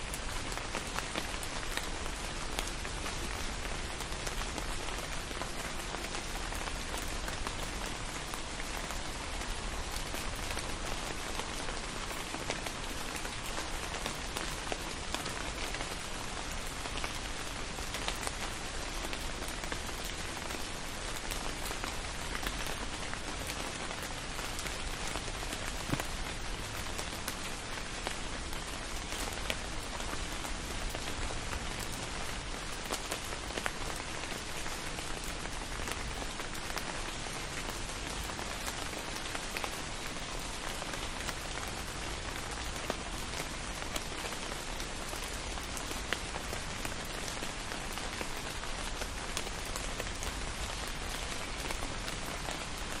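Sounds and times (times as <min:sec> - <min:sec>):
steady rain hiss: 0:00.0 - 0:53.0
close raindrop hits: 0:22.3 - 0:29.6.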